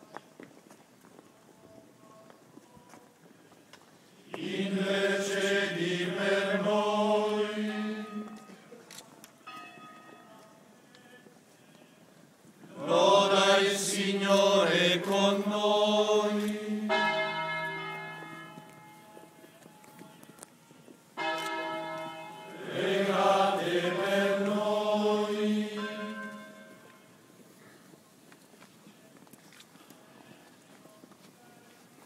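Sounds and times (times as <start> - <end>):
church bells ringing: 5.6 - 8.7, 9.4 - 10.6, 14.6 - 27.2.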